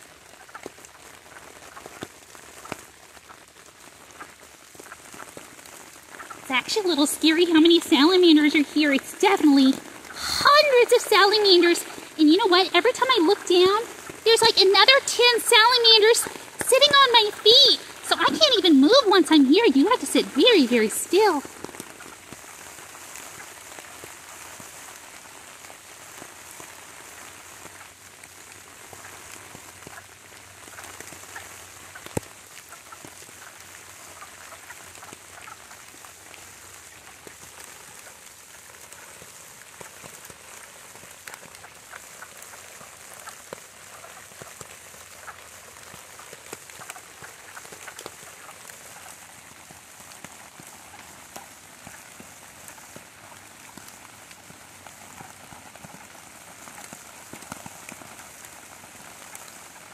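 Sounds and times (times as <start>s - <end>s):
rain pattering on leaf litter: 0.0s - 59.9s
frogs quacking: 6.1s - 22.2s.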